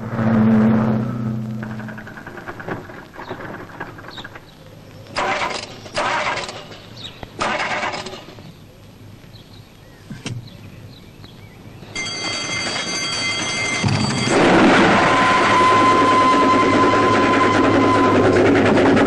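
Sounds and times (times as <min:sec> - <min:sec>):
level crossing warning bell: 0:11.8 - 0:18.5.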